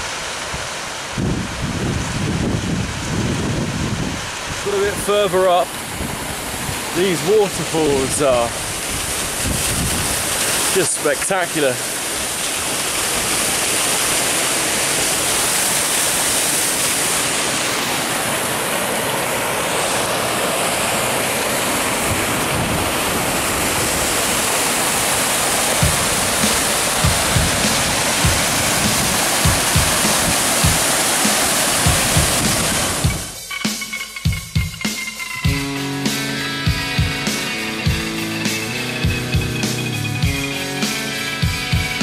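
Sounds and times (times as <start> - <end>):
waterfall rushing over rock: 0.0 - 33.4
short low thumps: 25.8 - 26.4, 27.0 - 30.8, 31.9 - 33.3.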